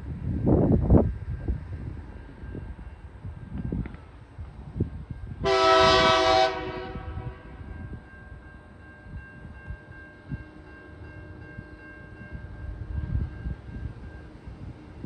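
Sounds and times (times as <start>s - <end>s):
locomotive horn chord blast: 5.4s - 7.6s.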